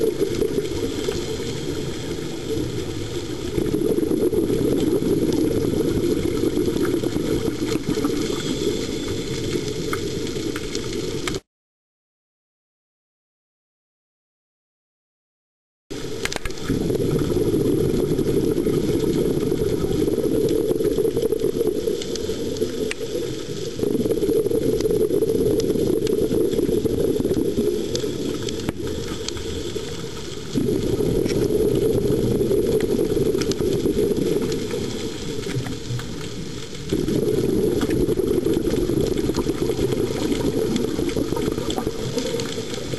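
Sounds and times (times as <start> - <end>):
exhaled bubbles: 0.0 - 11.4, 15.9 - 42.9
faint clicks: 16.2 - 16.7, 27.3 - 30.5.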